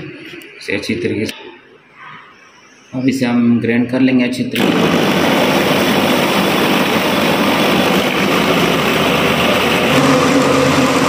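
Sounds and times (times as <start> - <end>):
blender motor whirring: 4.6 - 11.0.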